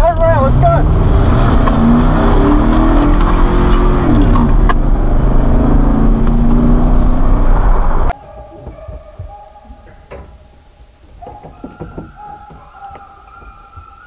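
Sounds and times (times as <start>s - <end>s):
truck engine accelerating: 0.0s - 8.1s
tyre noise on dirt road: 0.0s - 14.0s.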